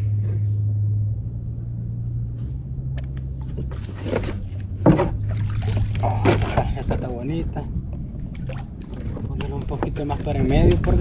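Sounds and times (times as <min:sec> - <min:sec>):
low rumble: 0:00.0 - 0:11.0
water splashing: 0:03.5 - 0:07.0, 0:08.3 - 0:10.0.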